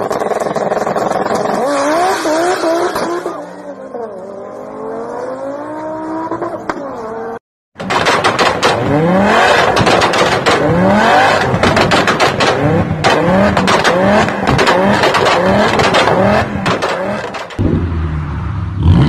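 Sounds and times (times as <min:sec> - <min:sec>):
exhaust pops and crackles: 0:00.0 - 0:01.6, 0:07.8 - 0:17.7
car engine revving: 0:00.0 - 0:19.0
low steady car engine: 0:07.9 - 0:19.0.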